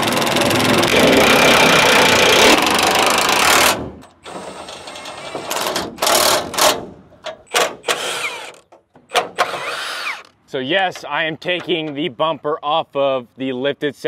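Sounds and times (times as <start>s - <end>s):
impact wrench hammering: 0.0s - 4.1s.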